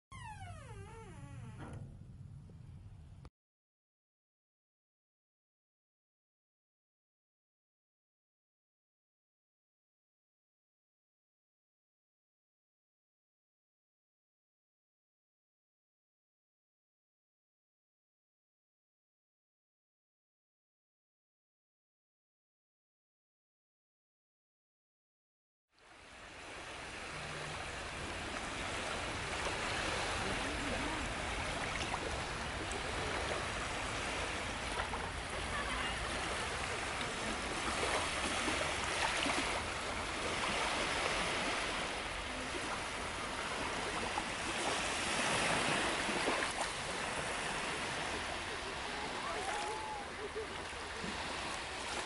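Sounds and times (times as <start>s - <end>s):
ocean waves washing ashore: 25.8s - 52.0s.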